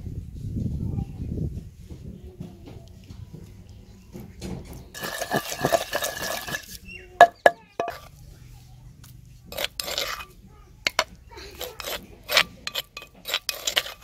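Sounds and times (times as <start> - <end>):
spoon clinking against stone: 5.0 - 8.1, 9.5 - 10.3, 10.9 - 14.0
spoon scraping stone mortar: 5.0 - 8.2, 9.5 - 14.0.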